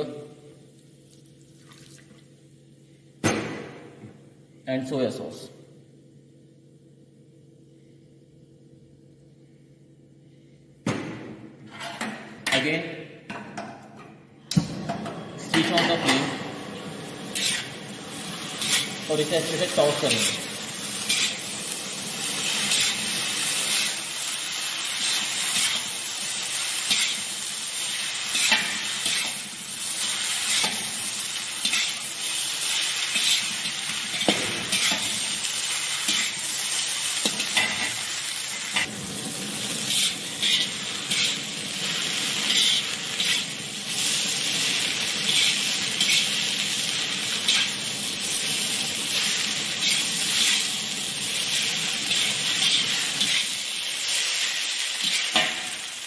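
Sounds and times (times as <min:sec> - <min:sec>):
food sizzling in wok: 0:15.2 - 0:56.0
spatula scraping and clinking wok: 0:17.3 - 0:17.8, 0:20.0 - 0:21.4, 0:31.5 - 0:32.4, 0:39.8 - 0:41.5, 0:42.2 - 0:46.4.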